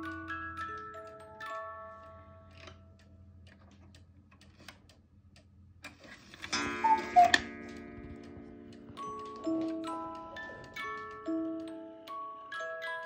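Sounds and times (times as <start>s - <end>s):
music box playing: 0.0s - 3.0s, 6.5s - 13.0s
cuckoo call: 6.8s - 7.5s.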